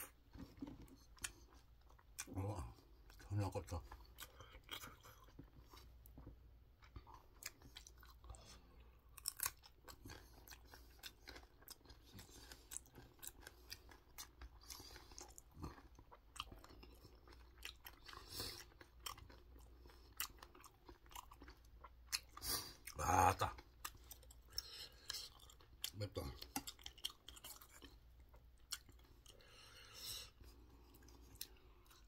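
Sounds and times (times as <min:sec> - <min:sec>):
chili pepper crunching: 0:09.1 - 0:29.3.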